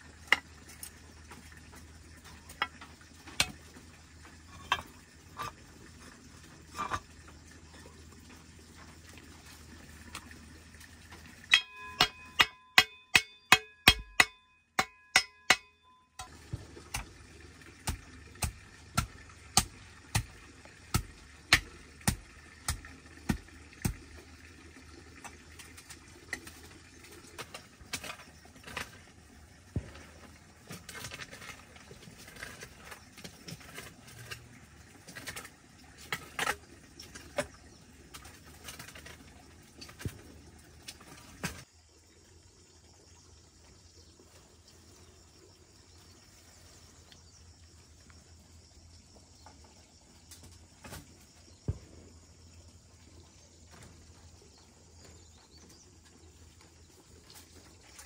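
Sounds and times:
ringing metallic clinks: 11.5s - 16.3s.

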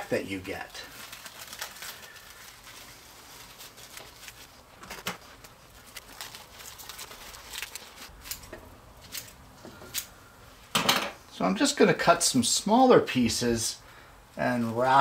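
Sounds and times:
plastic wrap crinkling: 0.0s - 9.4s
sharp plastic crackles: 0.5s - 10.1s.

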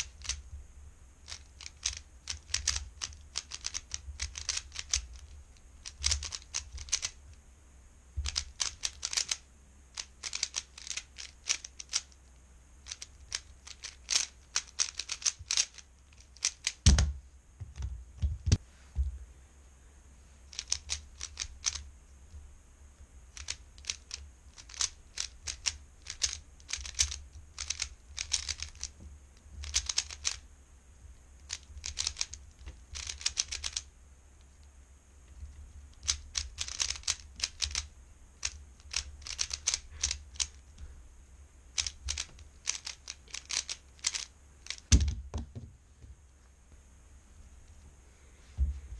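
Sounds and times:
puzzle cube clicking and clacking: 0.0s - 0.4s, 1.2s - 7.3s, 8.2s - 12.2s, 12.8s - 18.6s, 20.5s - 21.9s, 23.3s - 29.0s, 29.6s - 30.4s, 31.4s - 34.6s, 35.9s - 40.7s, 41.7s - 45.5s
dull thumps: 16.8s - 19.2s, 44.8s - 46.2s, 48.6s - 48.9s.

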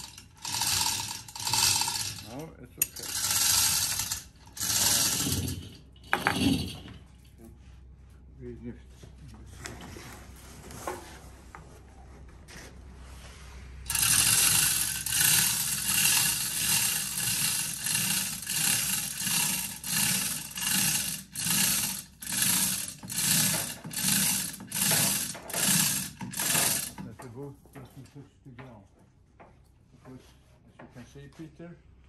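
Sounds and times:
chain rattling through hoist: 0.0s - 7.4s, 13.9s - 27.1s.

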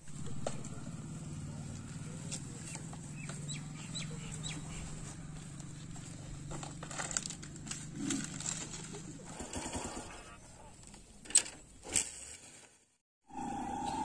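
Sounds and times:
bird chirps: 2.6s - 4.9s
low hum: 13.3s - 14.0s.

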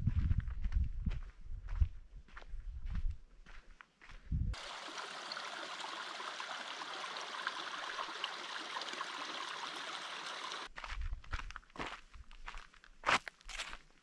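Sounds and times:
stream running over rocks: 4.6s - 10.7s.

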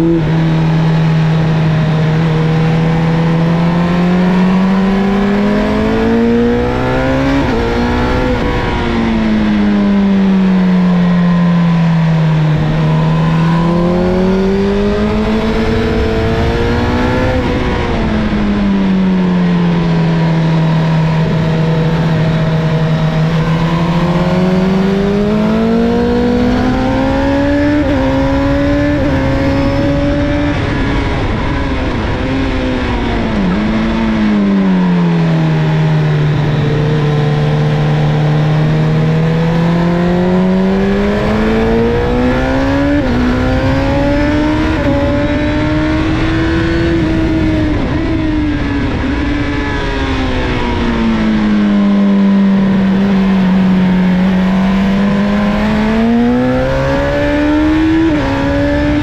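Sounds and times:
motorcycle engine revving: 0.0s - 59.0s
wind rush: 12.5s - 38.1s, 40.6s - 59.0s.

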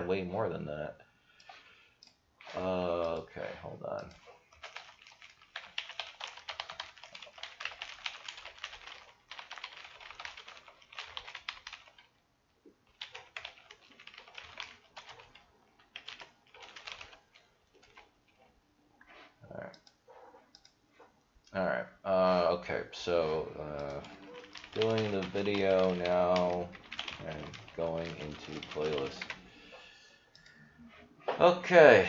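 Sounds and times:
typing on computer keyboard: 4.0s - 12.1s, 12.9s - 18.1s, 23.7s - 29.4s.

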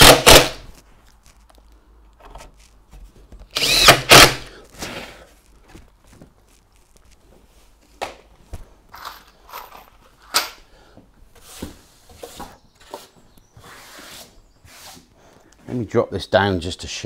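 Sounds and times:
tools and timber knocking and scraping: 8.9s - 15.9s.

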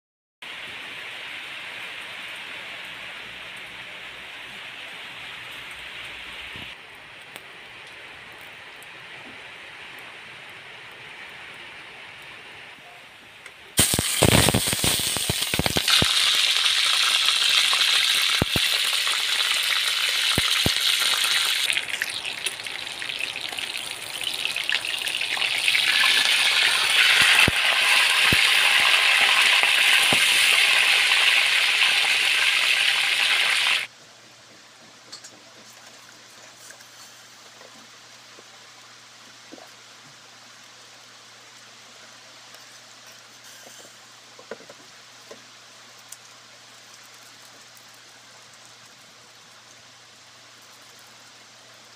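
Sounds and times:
pork sizzling in hot oil: 13.7s - 33.9s
oil popping: 13.8s - 30.9s.

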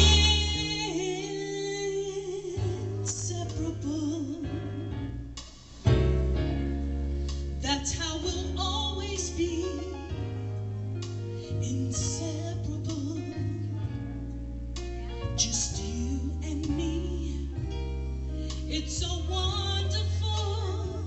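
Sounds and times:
instrumental accompaniment: 0.0s - 1.7s
woman singing into a microphone: 0.0s - 5.1s, 7.6s - 10.4s, 11.6s - 13.9s, 15.4s - 17.8s, 18.6s - 21.0s.

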